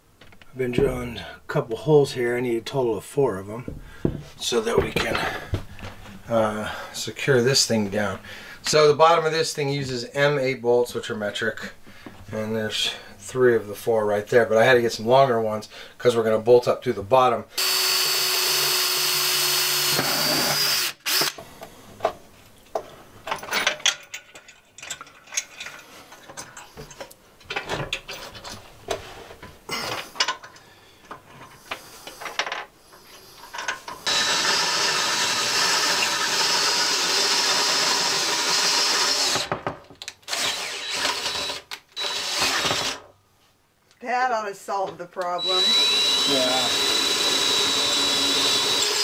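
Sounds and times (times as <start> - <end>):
cordless drill boring into stone: 17.6 - 21.4, 34.0 - 39.5, 40.3 - 43.0, 45.4 - 49.0.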